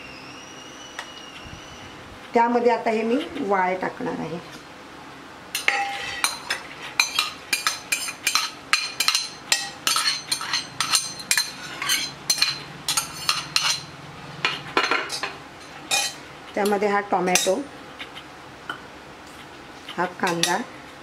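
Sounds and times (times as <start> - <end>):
spoon scraping and tapping: 5.6 - 13.9.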